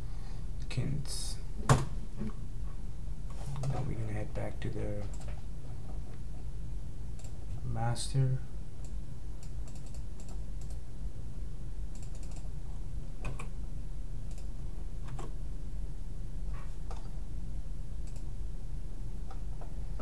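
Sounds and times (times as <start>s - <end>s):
steady low hum: 0.0s - 20.0s
computer keyboard keystrokes: 8.8s - 10.8s, 12.0s - 12.5s.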